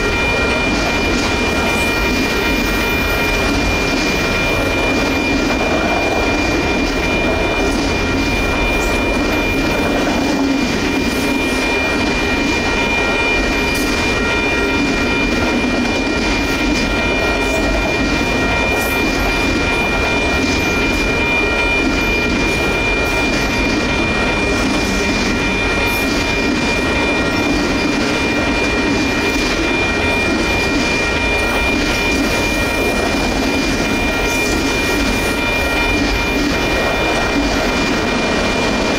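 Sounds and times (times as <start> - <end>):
high ringing tone: 0.0 - 38.9
train wheels rumbling on rails: 0.0 - 38.9.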